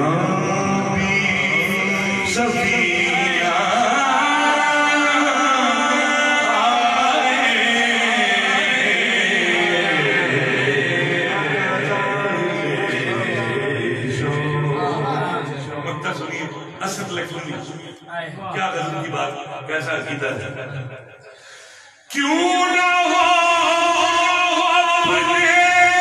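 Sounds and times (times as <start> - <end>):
man singing unaccompanied: 0.0 - 16.4, 22.1 - 26.0.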